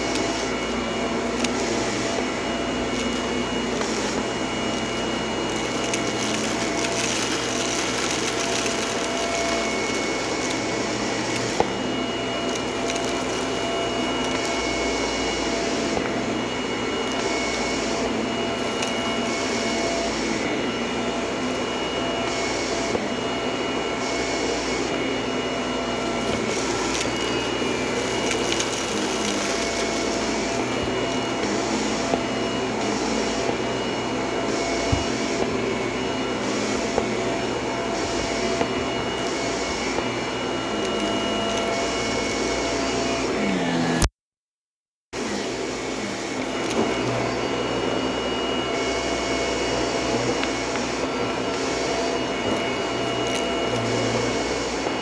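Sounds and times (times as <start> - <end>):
vacuum cleaner running on carpet: 0.0 - 44.1, 45.2 - 55.0.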